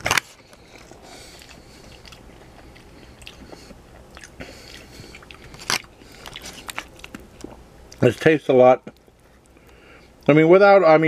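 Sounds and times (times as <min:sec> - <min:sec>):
person chewing food: 0:00.0 - 0:08.0.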